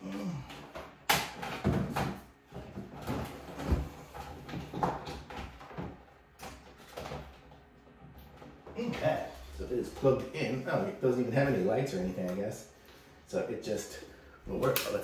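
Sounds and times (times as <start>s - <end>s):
knocks and rustling: 0.7s - 10.4s.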